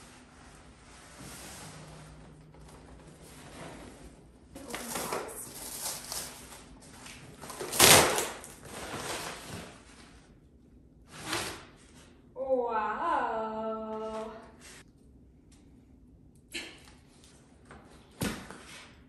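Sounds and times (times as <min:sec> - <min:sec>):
cardboard scraping and rustling: 0:01.0 - 0:10.2.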